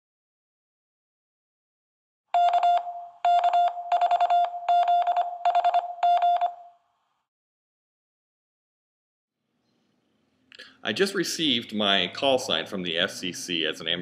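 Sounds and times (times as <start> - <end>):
morse code beeping: 2.4 - 6.7.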